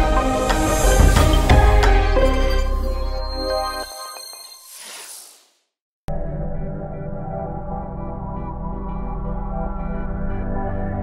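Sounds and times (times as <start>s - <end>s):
sustained chords over deep bass: 6.1s - 11.0s.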